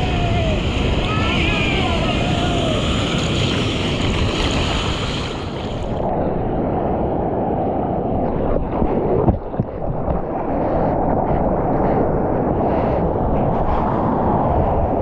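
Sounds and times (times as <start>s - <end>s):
water splashes: 0.0s - 6.1s
ocean surf rushing: 0.0s - 11.8s
wind buffeting microphone: 0.0s - 15.0s.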